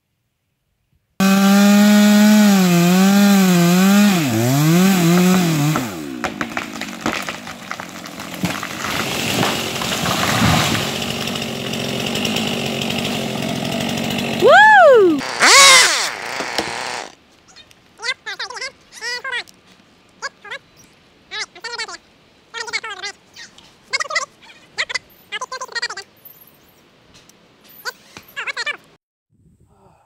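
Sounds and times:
wood cracking and branches breaking: 1.2 - 14.4
chainsaw cutting tree: 1.2 - 17.2.

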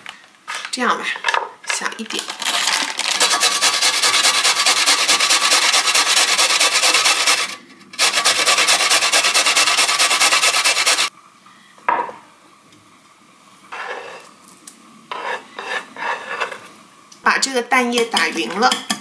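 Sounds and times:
carrot grated on metal grater: 2.4 - 11.1.

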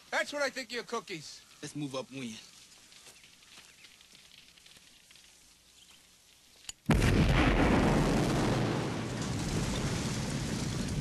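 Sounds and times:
loud rumbling explosion: 6.9 - 11.0.

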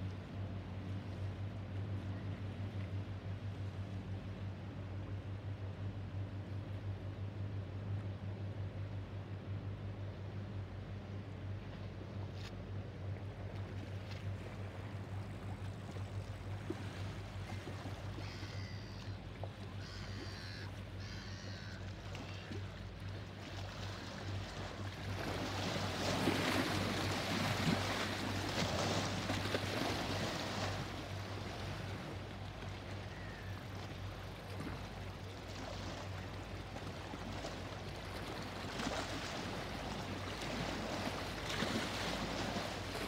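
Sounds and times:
water lapping against riverbank: 0.0 - 43.0
ship engine drone: 0.1 - 38.6
bird calling: 17.6 - 22.8, 33.0 - 33.6.

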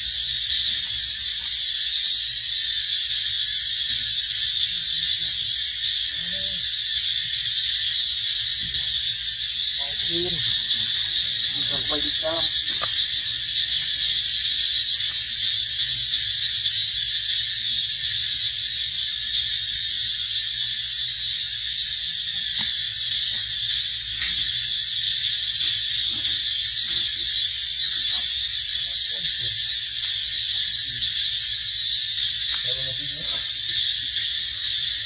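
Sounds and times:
insect chorus buzzing: 0.0 - 35.0.

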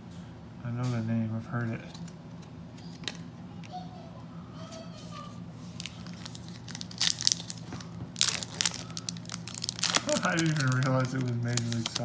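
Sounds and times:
plastic wrapper crinkling and tearing: 5.7 - 12.0.

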